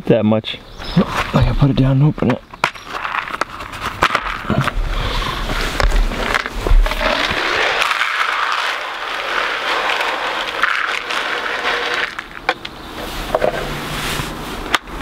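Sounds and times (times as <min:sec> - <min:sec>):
grain pouring into plastic trough: 0:06.8 - 0:12.5.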